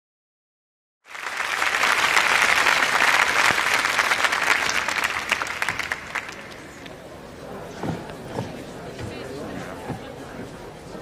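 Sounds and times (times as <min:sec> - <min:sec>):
audience applauding: 0:01.1 - 0:07.0.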